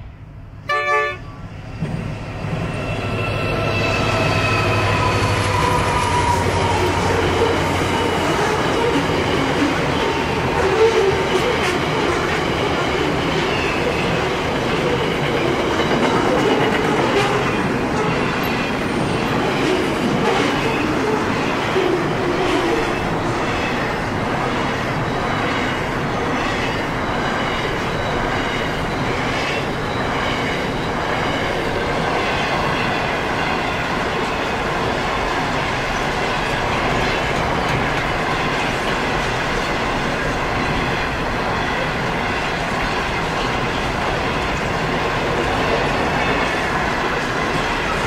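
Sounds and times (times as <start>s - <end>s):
train wheels rolling on rail: 1.4s - 48.0s
faint high ringing tones: 23.8s - 33.8s.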